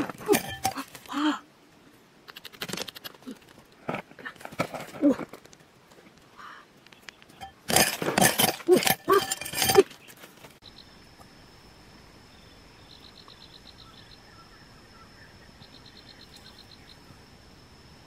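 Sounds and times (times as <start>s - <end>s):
loud clatter: 7.4s - 10.0s
high-pitched insect trill: 7.4s - 18.0s.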